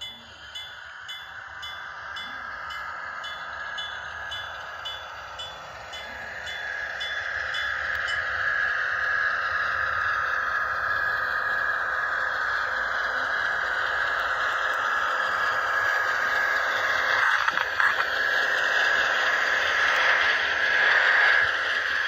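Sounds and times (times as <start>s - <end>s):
model train bell ringing: 0.0s - 9.5s
model train running: 0.0s - 22.0s.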